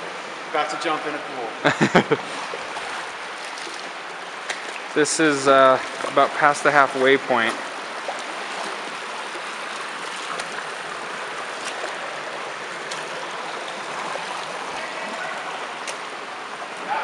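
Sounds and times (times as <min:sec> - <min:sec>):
creek water running over rocks: 0:00.1 - 0:17.0.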